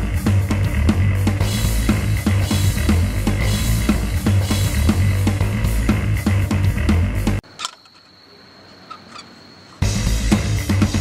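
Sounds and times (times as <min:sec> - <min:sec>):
bass guitar: 0:00.0 - 0:07.4, 0:09.8 - 0:11.0
drum kit: 0:00.0 - 0:07.4, 0:09.8 - 0:11.0.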